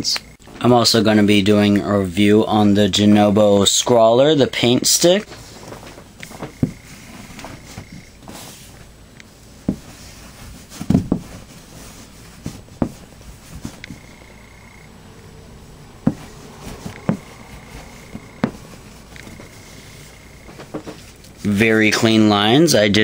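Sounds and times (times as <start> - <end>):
sharp knocks and taps: 16.0 - 17.4, 18.0 - 19.4.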